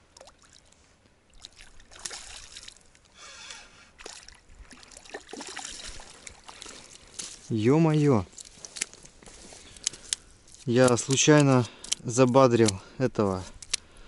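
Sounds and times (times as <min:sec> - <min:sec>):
fish splashing at surface: 0:01.4 - 0:02.9, 0:04.0 - 0:07.2.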